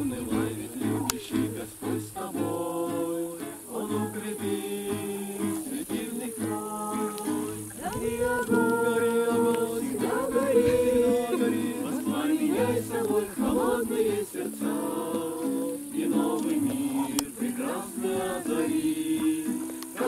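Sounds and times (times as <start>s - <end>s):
group of people singing: 0.0s - 20.0s
strummed acoustic guitar: 0.0s - 20.0s.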